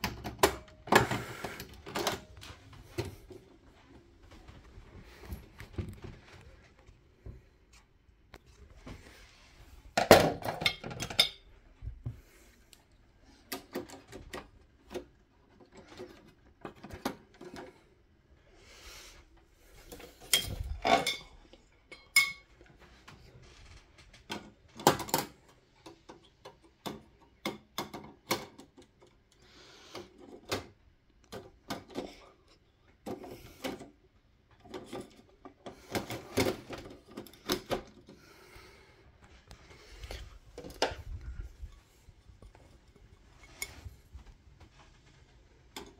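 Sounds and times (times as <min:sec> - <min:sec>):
clicks and clatter of fluorescent tubes: 0:19.8 - 0:29.4.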